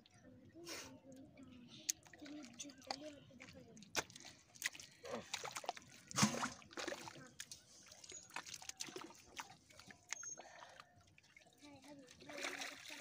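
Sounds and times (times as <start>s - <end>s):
fish thrashing in water: 2.0s - 11.6s.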